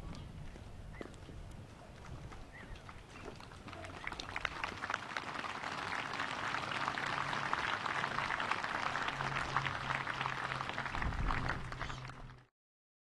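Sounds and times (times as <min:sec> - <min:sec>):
crowd applauding: 0:02.8 - 0:12.5.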